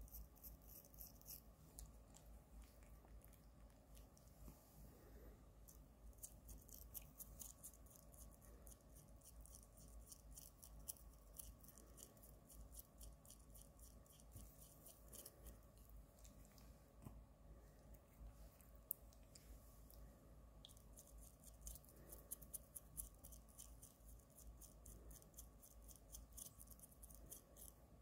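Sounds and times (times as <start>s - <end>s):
toothbrush scrubbing teeth: 0.0s - 4.2s, 20.7s - 27.8s.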